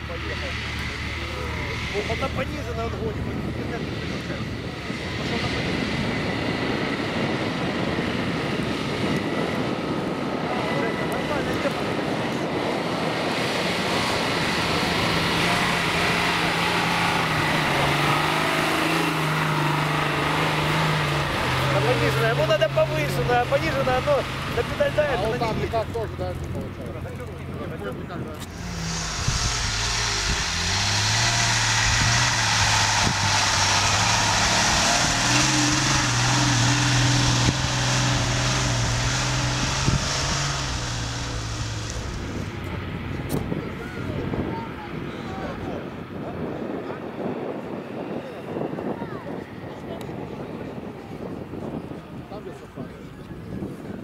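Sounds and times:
engine running under load: 0.0 - 54.0
steady hiss: 28.5 - 34.7.

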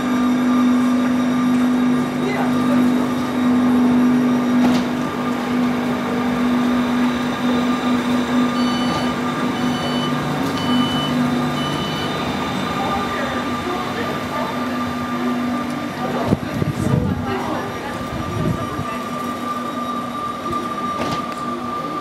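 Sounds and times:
electric train humming: 0.0 - 22.0
short high beeps: 8.5 - 12.2.

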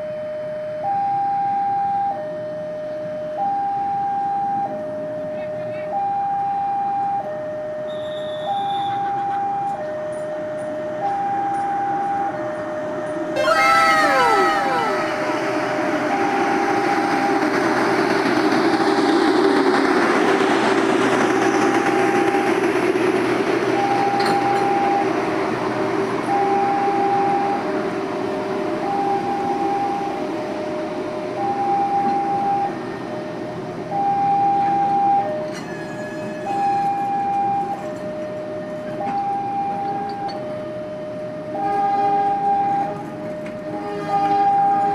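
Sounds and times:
two-tone crossing alarm: 0.0 - 17.4, 23.8 - 25.2, 26.3 - 27.7, 28.8 - 30.3, 31.4 - 44.9
train coaches rumbling on track: 1.4 - 44.9
faint high tone: 13.4 - 15.5.

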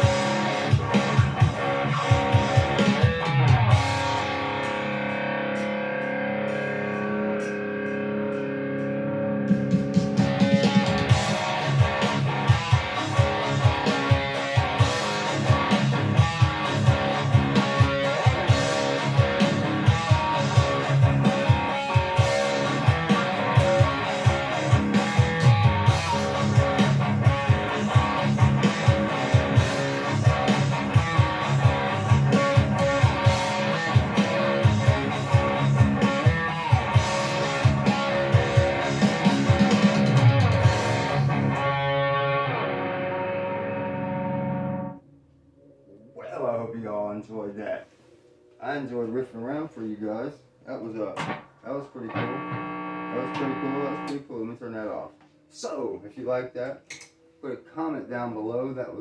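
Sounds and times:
rock drum backing track: 0.0 - 43.3, 51.0 - 54.2
distorted electric guitar riffing: 0.0 - 46.6, 50.8 - 54.8.

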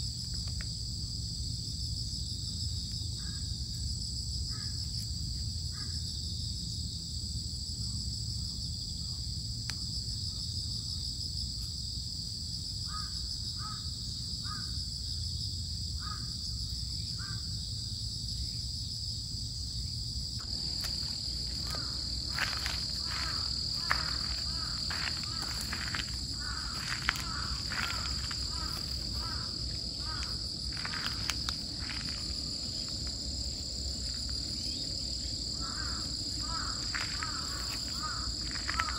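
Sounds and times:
insect chorus buzzing: 0.0 - 38.9
crows cawing: 12.9 - 13.8, 20.4 - 32.3, 35.5 - 38.9
low outdoor rumble: 20.4 - 38.9.

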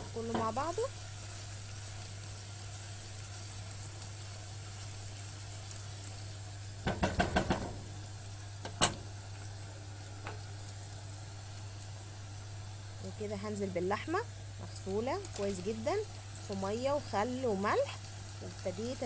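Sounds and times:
food sizzling in a pot: 0.0 - 19.0
spatula knocking against pot: 6.9 - 7.8.

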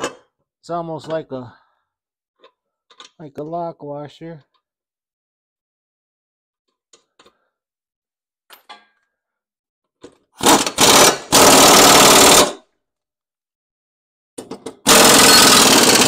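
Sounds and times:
air impact wrench hammering: 10.4 - 12.6, 14.8 - 16.0.

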